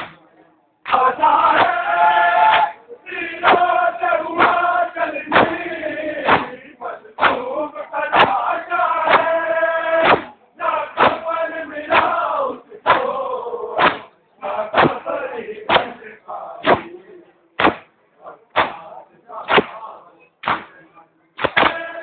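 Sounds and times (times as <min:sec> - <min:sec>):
chest beating slaps: 0:00.0 - 0:00.2, 0:00.9 - 0:01.9, 0:02.5 - 0:02.8, 0:03.4 - 0:03.8, 0:04.4 - 0:06.6, 0:07.2 - 0:07.5, 0:08.1 - 0:09.4, 0:10.0 - 0:10.4, 0:11.0 - 0:11.3, 0:11.9 - 0:12.2, 0:12.8 - 0:13.2, 0:13.8 - 0:15.0, 0:15.7 - 0:16.0, 0:16.6 - 0:17.0, 0:17.6 - 0:20.8, 0:21.4 - 0:21.9
men chanting in chorus: 0:00.9 - 0:17.0, 0:18.2 - 0:20.2, 0:21.6 - 0:22.0.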